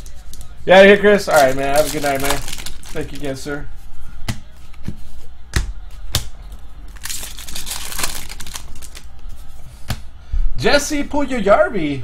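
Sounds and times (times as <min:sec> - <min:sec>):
foil wrapper crinkling: 0:00.0 - 0:03.4, 0:06.9 - 0:09.2.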